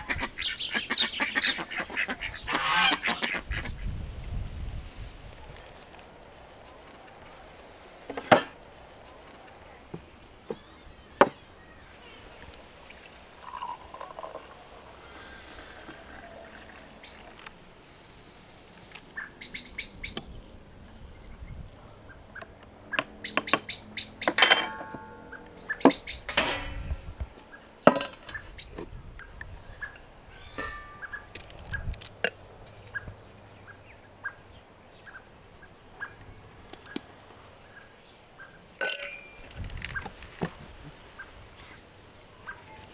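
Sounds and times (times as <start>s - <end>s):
birds chirping: 0.0s - 3.9s, 9.0s - 17.5s, 19.0s - 31.9s
metal spoon clinking against glass: 24.4s - 25.0s.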